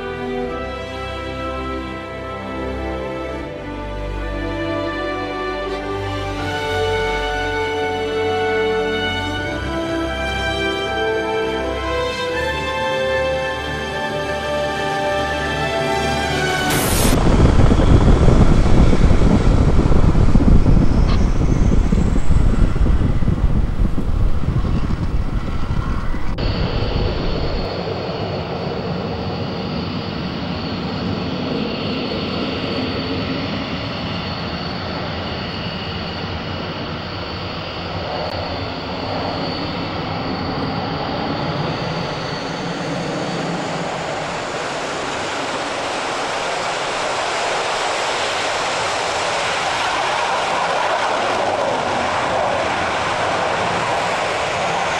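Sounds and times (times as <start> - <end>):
high jet whine: 0.0 - 54.9
jet roar: 0.0 - 54.9
jet engine deep rumble: 15.3 - 54.9.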